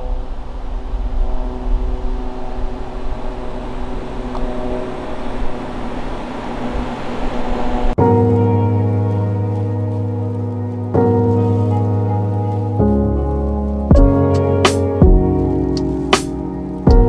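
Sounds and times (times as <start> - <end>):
car engine hum: 0.0 - 17.0
road and wind rumble: 0.0 - 17.0.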